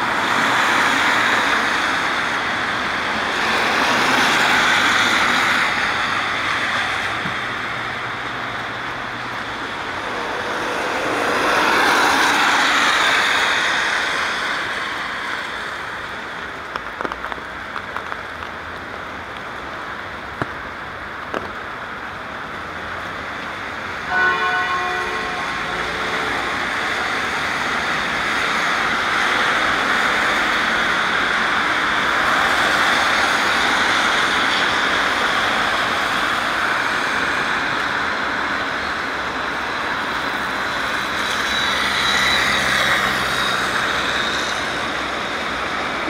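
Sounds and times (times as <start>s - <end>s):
tyres hissing on wet road: 0.0s - 46.0s
short horn-like tone: 24.1s - 26.5s.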